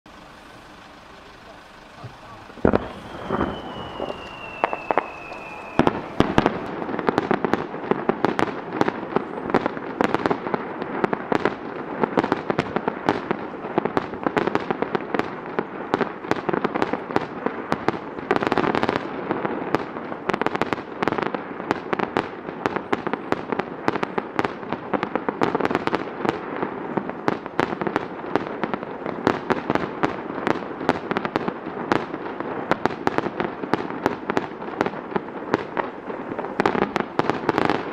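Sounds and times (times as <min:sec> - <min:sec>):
fireworks bangs and crackling: 0:00.1 - 0:37.9
falling firework whistle: 0:00.4 - 0:10.3.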